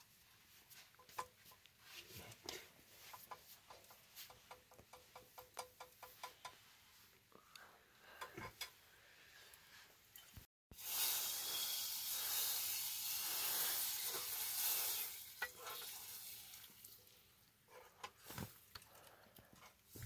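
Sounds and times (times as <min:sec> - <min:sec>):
food sizzling in a pan: 0:10.7 - 0:17.3.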